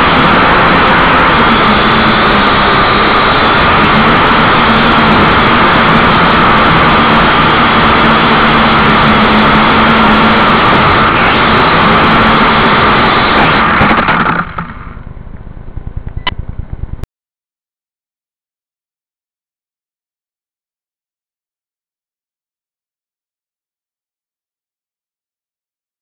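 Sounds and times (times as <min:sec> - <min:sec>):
toy drone motors whining: 0:00.0 - 0:14.0
click: 0:16.0 - 0:16.4.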